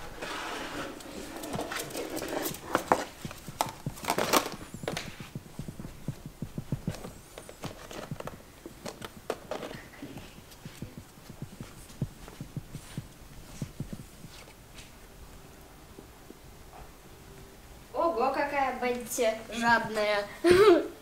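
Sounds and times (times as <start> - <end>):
plastic basket and toys rattling: 1.0 - 5.1, 6.9 - 10.1.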